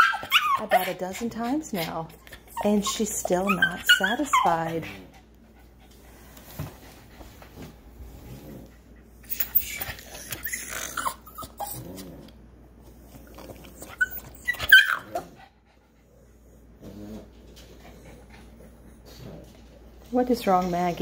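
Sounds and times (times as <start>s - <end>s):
dog yelping: 0.0s - 1.0s, 2.3s - 4.9s, 9.3s - 11.9s, 13.8s - 15.4s
dog whining and grumbling: 0.0s - 5.1s, 8.3s - 12.4s, 13.1s - 15.5s.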